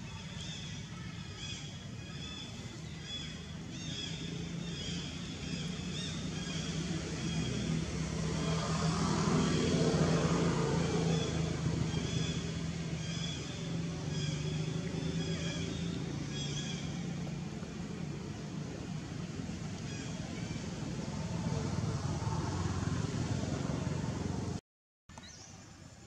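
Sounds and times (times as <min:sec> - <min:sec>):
vehicle engine hum: 0:00.0 - 0:24.6.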